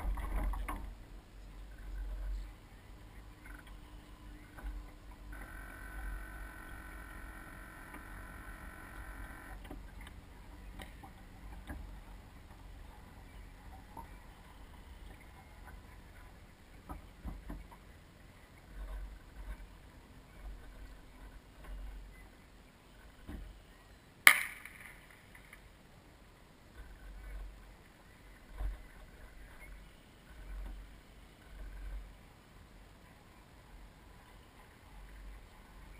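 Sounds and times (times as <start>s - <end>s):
faint clicks: 5.4s - 10.2s
sharp knock: 24.3s - 25.1s.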